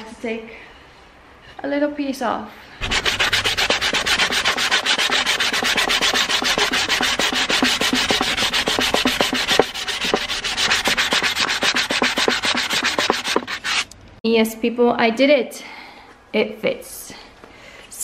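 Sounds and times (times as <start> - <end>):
sandpaper rubbing on wood: 2.8 - 13.9.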